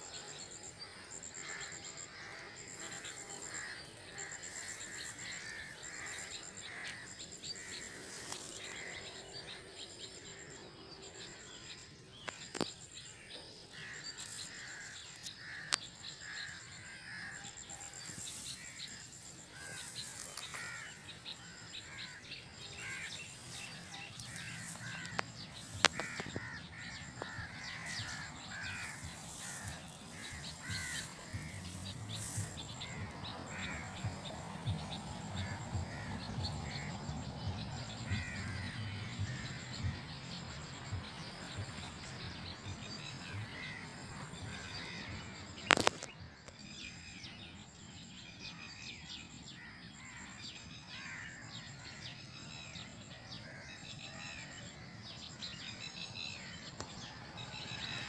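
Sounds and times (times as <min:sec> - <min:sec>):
birds chirping: 0:00.0 - 0:46.2.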